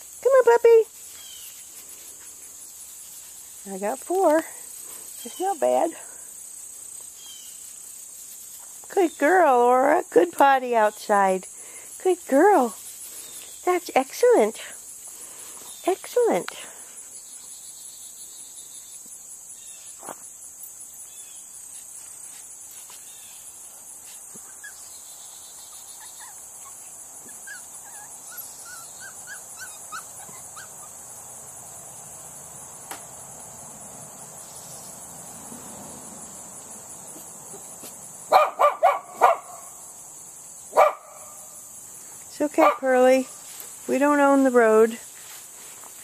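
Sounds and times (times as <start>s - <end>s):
insect chirring: 0.0s - 44.0s
dog barking: 38.3s - 39.7s, 40.7s - 41.4s, 42.6s - 42.8s.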